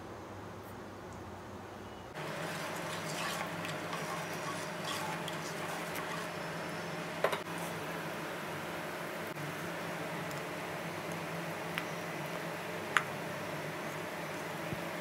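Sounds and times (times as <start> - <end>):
spatula scraping metal pot: 2.2 - 7.0.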